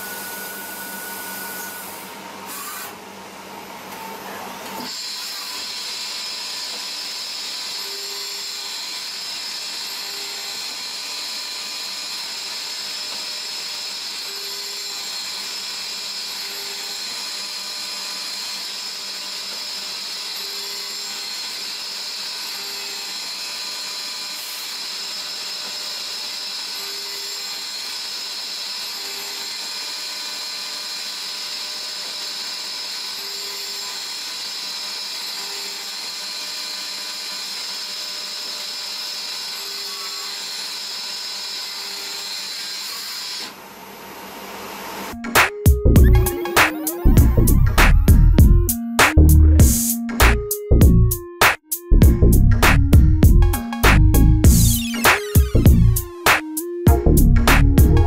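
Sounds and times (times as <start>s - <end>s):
lathe cutting whine and hiss: 0.0s - 45.2s.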